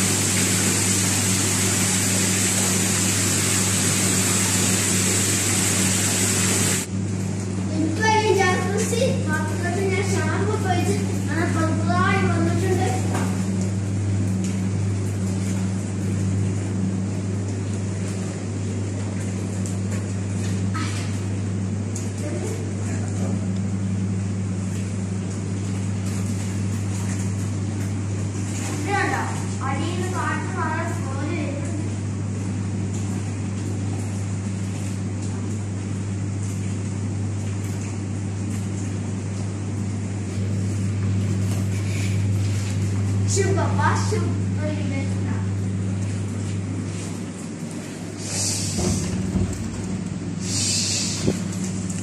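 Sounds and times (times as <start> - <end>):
water bubbling and churning: 0.0 - 6.9
jet pump humming: 0.0 - 52.0.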